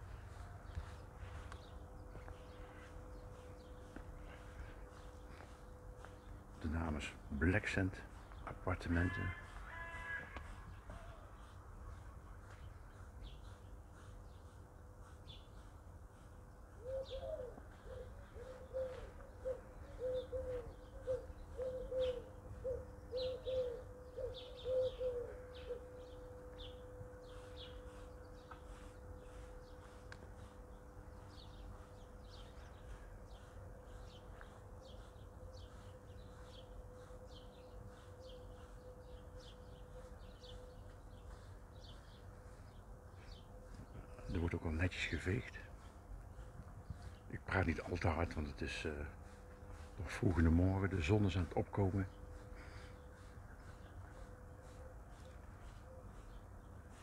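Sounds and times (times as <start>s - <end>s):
small birds chirping: 0.0s - 57.0s
low cooing call: 10.2s - 12.1s, 16.8s - 30.5s, 31.7s - 44.3s
faint steady hum: 20.9s - 57.0s.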